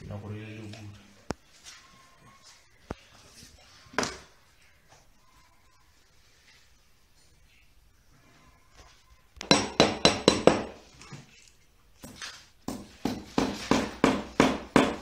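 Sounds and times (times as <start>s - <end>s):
hammer tapping nails: 9.4s - 10.8s, 12.7s - 15.0s.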